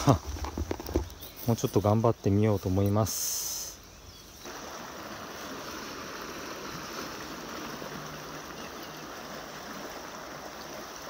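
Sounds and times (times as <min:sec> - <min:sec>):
river rushing over rocks: 0:04.5 - 0:11.0.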